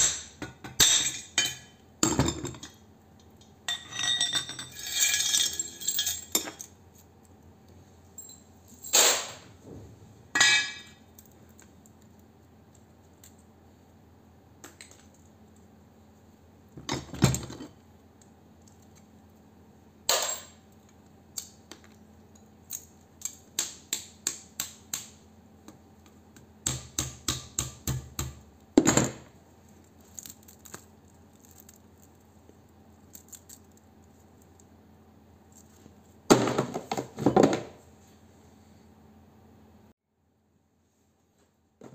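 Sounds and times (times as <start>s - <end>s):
metal clinking and knocking: 3.7s - 6.8s.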